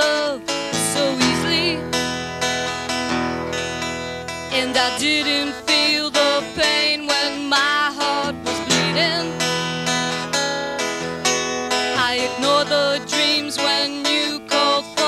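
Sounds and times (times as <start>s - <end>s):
woman singing: 0.0s - 2.1s, 4.5s - 10.4s, 11.7s - 15.0s
instrumental accompaniment: 0.0s - 15.0s.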